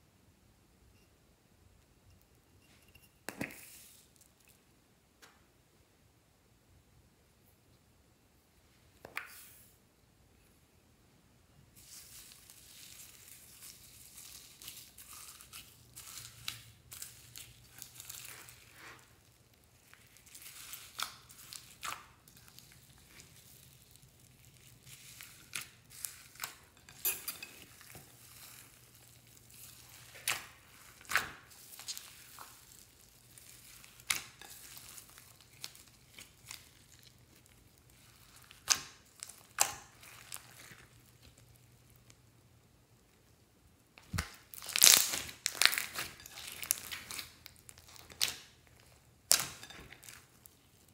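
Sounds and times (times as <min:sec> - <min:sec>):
foam beads crunching: 0:11.8 - 0:42.0, 0:44.1 - 0:50.9.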